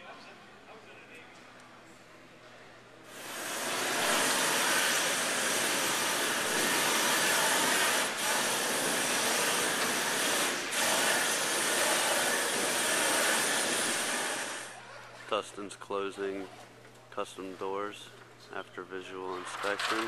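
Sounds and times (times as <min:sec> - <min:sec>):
heat gun blowing: 0:03.1 - 0:14.8.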